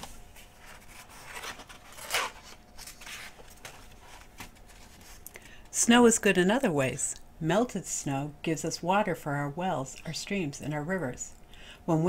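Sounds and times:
book page turning: 0:00.0 - 0:05.3.

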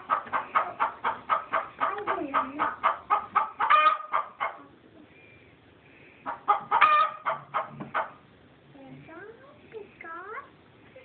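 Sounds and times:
hen clucking: 0:00.0 - 0:05.4, 0:06.0 - 0:08.3
hen squawking: 0:00.1 - 0:04.8, 0:06.2 - 0:08.2.

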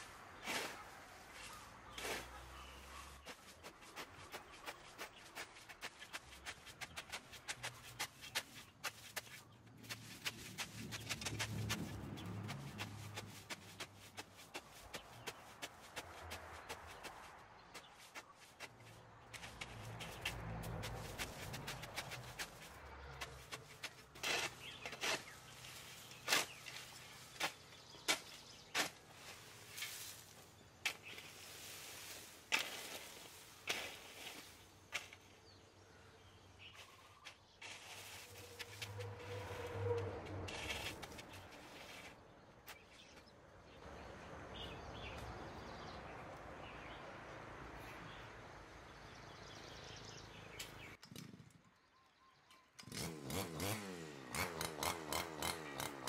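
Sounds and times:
shovel scraping leaves and soil: 0:00.0 - 0:35.7, 0:36.6 - 0:43.3.

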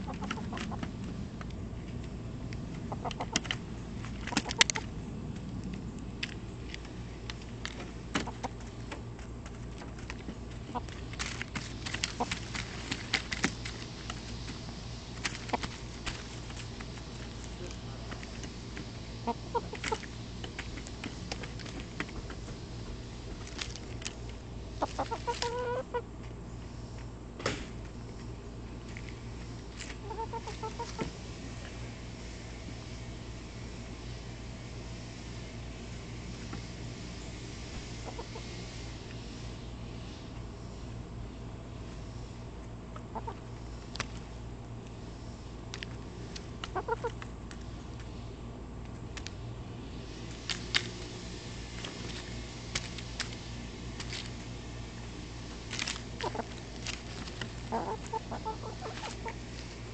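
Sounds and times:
hens clucking softly: 0:00.0 - 0:01.0, 0:02.8 - 0:03.6, 0:19.1 - 0:20.7, 0:24.7 - 0:26.1, 0:29.8 - 0:31.2, 0:37.9 - 0:38.7, 0:42.9 - 0:43.6, 0:46.6 - 0:47.3, 0:56.1 - 0:59.8
hens scratching in dry leaves: 0:00.0 - 0:27.0, 0:27.9 - 0:40.4, 0:41.6 - 0:59.9
low steady hum: 0:00.0 - 0:59.9.

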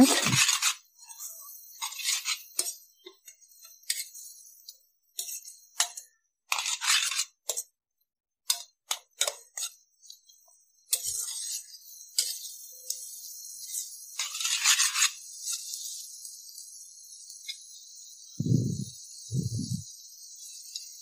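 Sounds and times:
spatula scraping a steel pot: 0:00.0 - 0:07.8, 0:08.5 - 0:17.8.

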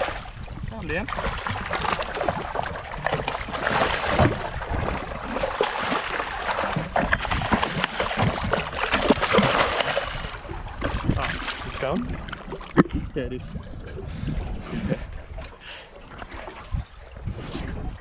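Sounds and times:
water sloshing against boat: 0:00.0 - 0:18.0
fish thrashing at surface: 0:01.1 - 0:11.6.

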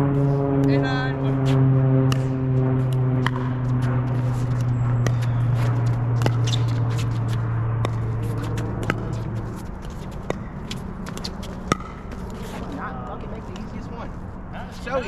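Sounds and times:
low drone: 0:00.0 - 0:15.0
shoe scuffs: 0:04.2 - 0:07.4
paddles popping against ball: 0:04.6 - 0:12.4.

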